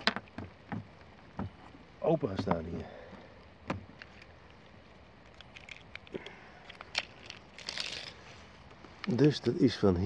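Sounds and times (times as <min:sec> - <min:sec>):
tape measure blade rattling out: 0:07.0 - 0:08.2.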